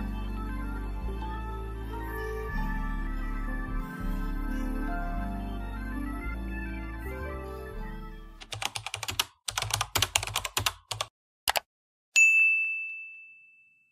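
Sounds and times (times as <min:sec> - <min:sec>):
soft background music: 0:00.0 - 0:08.7
keyboard typing clicks: 0:08.4 - 0:11.7
bell-like ding: 0:12.2 - 0:13.9.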